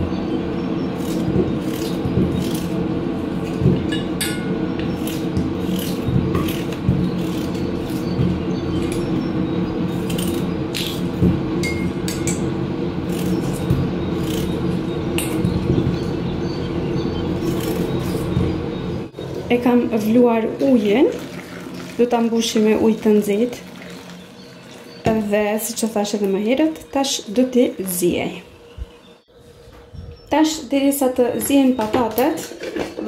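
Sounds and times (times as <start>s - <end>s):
steady low hum: 0.0s - 32.7s
knife slicing potatoes: 5.0s - 8.2s.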